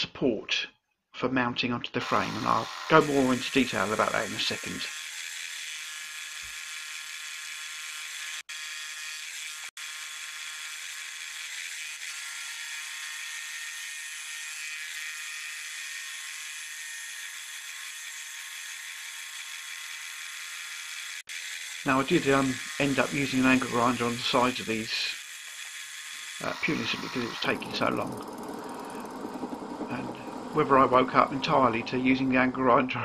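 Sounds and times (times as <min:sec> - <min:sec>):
milling machine cutting steel: 0:02.0 - 0:05.5, 0:21.1 - 0:32.0.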